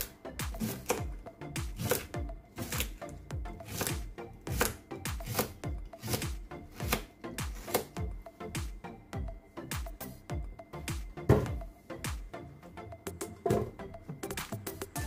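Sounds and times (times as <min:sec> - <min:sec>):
background music with beat: 0:00.0 - 0:15.0
knife slicing on cutting board: 0:00.6 - 0:01.0, 0:01.8 - 0:03.0, 0:03.6 - 0:07.9.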